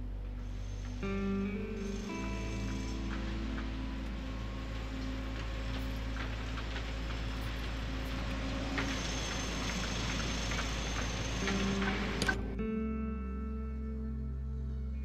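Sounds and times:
distant traffic rumble: 0.0s - 12.7s
bright hiss: 0.4s - 12.4s.

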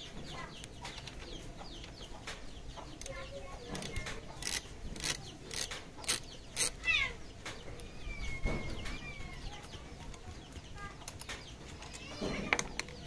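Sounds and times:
metal wrench clicking on bolt: 3.8s - 6.8s.

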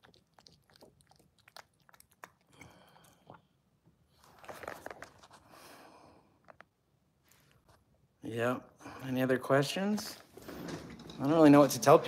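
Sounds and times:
cat crunching food: 0.0s - 3.4s.

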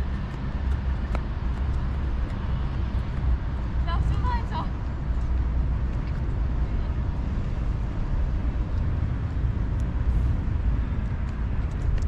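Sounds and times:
faint outdoor background noise: 0.0s - 12.0s
wind rumbling on microphone: 0.0s - 12.0s.

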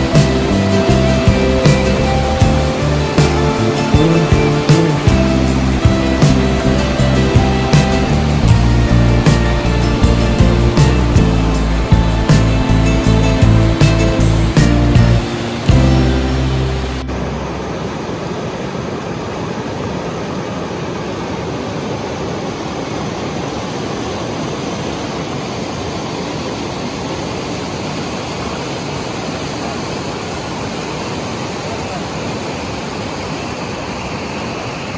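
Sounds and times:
river rushing: 0.0s - 34.9s.

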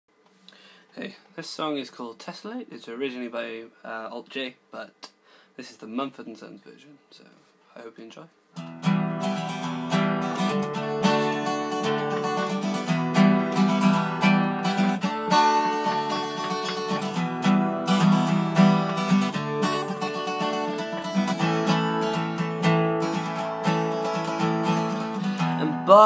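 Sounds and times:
acoustic guitar strumming: 8.6s - 26.0s.

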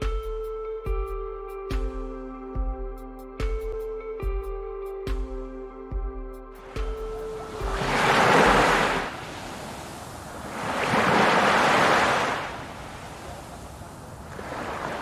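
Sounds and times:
sea waves washing in: 6.6s - 15.0s.

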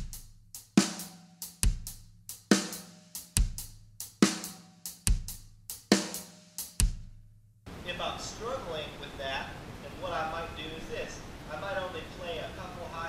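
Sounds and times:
snare drum: 0.0s - 7.1s
hi-hat and cymbal strokes: 0.0s - 7.3s
bass drum: 0.0s - 7.4s.

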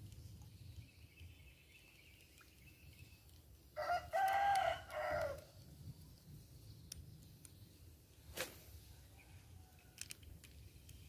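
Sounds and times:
rooster crowing: 3.8s - 5.4s.

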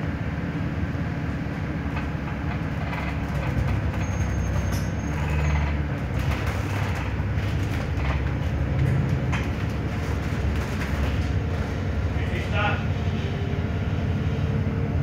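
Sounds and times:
bus engine humming: 0.0s - 15.0s
interior rattles: 1.8s - 12.5s.

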